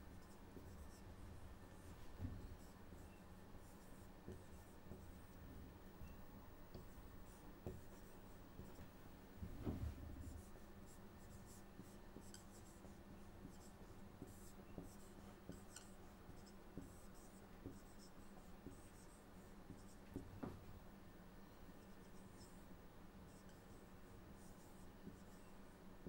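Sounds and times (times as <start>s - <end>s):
soft thump: 9.4s - 10.0s
marker squeaking on whiteboard: 11.2s - 20.0s.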